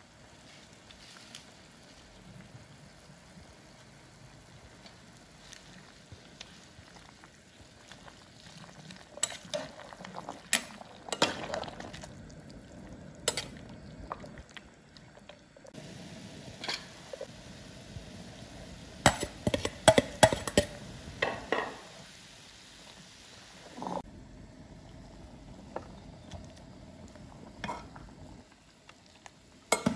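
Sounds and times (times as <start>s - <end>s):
broth bubbling: 0.0s - 21.4s, 23.5s - 29.8s.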